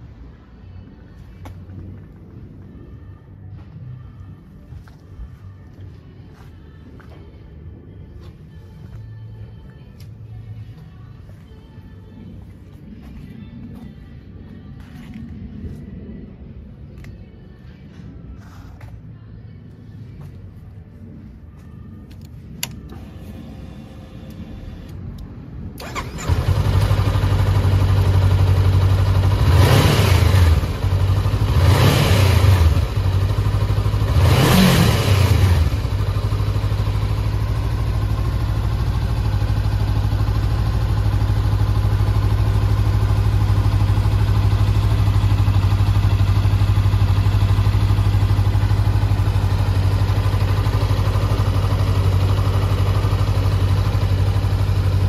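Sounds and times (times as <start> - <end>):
motorcycle engine starting and revving: 22.1 - 55.0.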